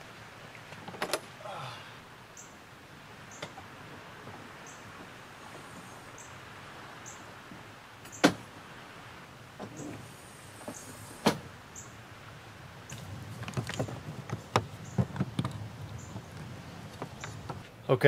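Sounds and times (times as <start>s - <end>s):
camper roof being pushed up: 9.5s - 11.5s.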